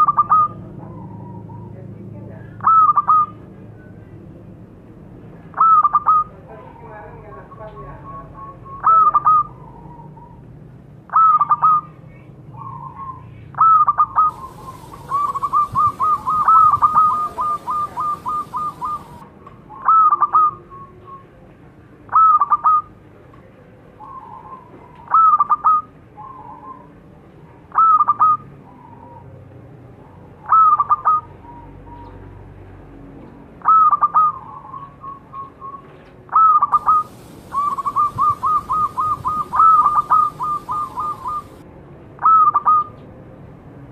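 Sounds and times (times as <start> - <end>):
dove cooing: 0.0 - 1.8, 12.6 - 20.9, 33.6 - 41.6, 42.2 - 42.9.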